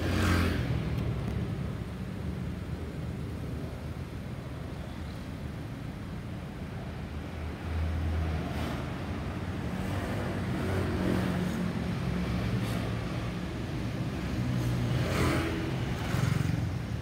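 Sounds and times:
vehicle passing: 0.0s - 0.7s, 14.3s - 17.0s
street traffic: 0.0s - 17.0s.

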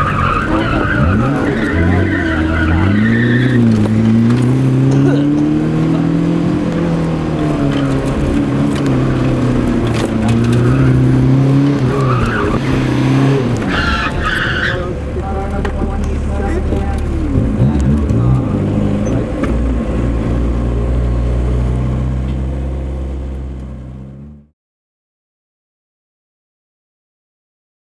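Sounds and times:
tires squealing: 0.0s - 20.3s
car engine revving: 0.0s - 24.5s.

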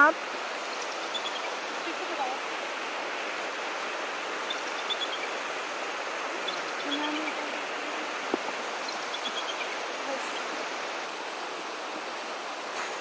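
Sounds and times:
river rushing: 0.0s - 13.0s
faint bird chirps: 0.7s - 1.5s, 8.8s - 10.6s.

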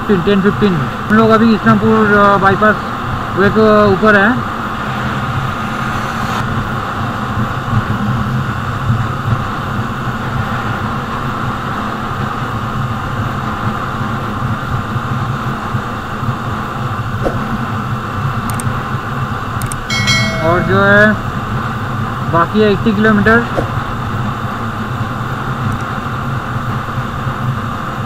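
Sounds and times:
wind and road noise: 0.4s - 20.3s.

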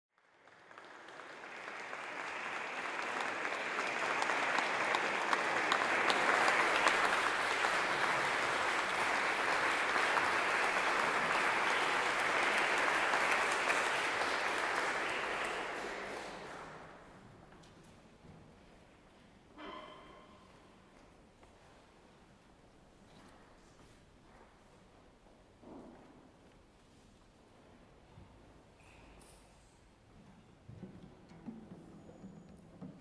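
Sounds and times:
audience applauding: 0.1s - 17.0s.

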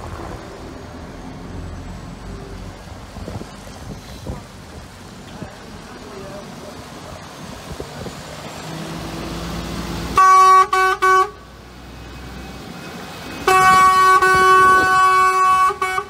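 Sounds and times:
truck diesel engine passing: 0.0s - 16.0s
air horn blasts: 10.1s - 11.4s, 13.4s - 16.0s.

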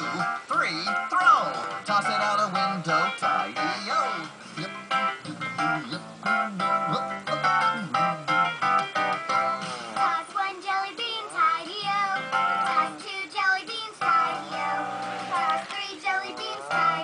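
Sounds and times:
backing music: 0.0s - 10.3s, 11.2s - 13.3s, 13.9s - 17.0s
child singing: 10.0s - 17.0s.

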